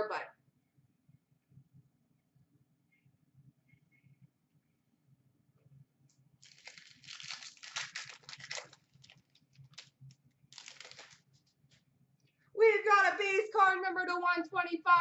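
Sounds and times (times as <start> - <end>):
wrapper tearing and crinkling: 6.4 - 11.3.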